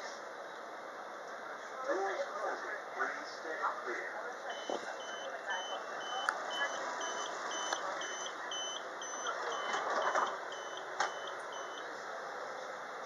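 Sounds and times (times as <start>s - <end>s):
short high warning beeps: 4.5s - 11.9s.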